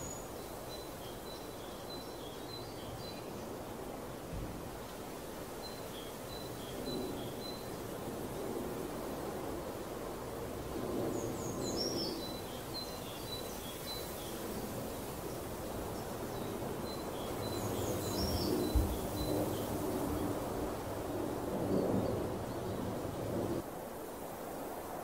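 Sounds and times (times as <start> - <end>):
songbird chirping and trilling: 0.0 - 3.6, 11.2 - 20.4
low outdoor background noise: 0.0 - 25.0.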